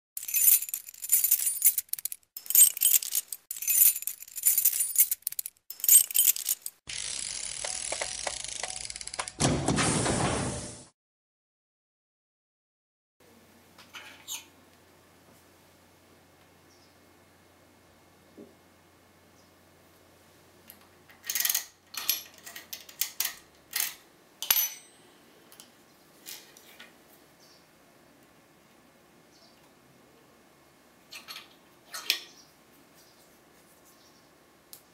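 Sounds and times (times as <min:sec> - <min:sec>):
metal tools clinking: 0:00.2 - 0:06.8, 0:21.2 - 0:25.1
metallic jingling and rattling: 0:00.2 - 0:06.8.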